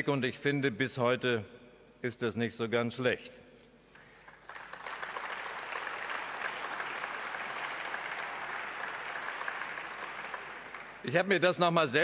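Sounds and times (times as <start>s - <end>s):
audience applauding: 4.0s - 11.2s.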